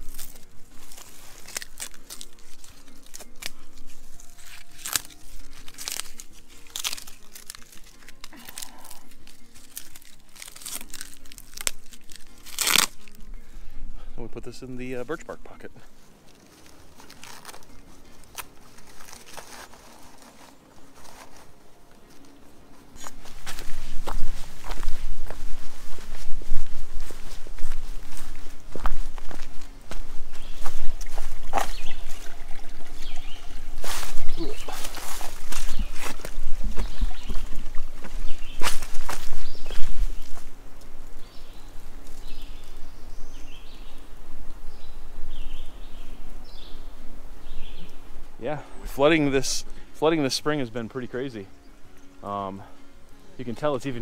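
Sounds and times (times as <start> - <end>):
dry bark crackling: 0.0 - 54.0
footsteps on leafy dirt trail: 0.0 - 54.0
small songbird calling: 31.5 - 35.0, 44.7 - 49.8.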